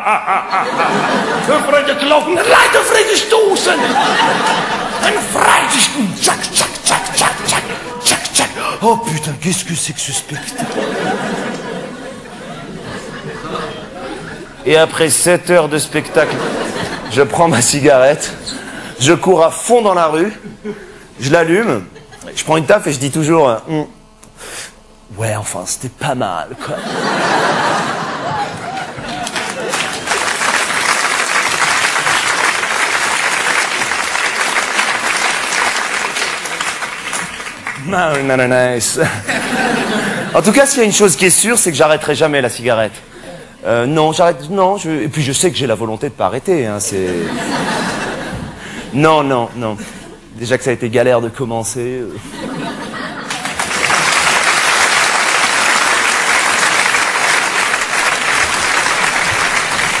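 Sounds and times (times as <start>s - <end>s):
audience applauding: 27.3s - 38.5s, 53.0s - 60.0s.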